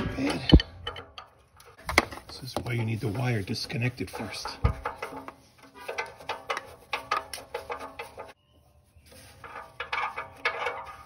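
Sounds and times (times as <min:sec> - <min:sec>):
metallic clicks and knocks: 0:00.0 - 0:03.0, 0:04.0 - 0:08.4.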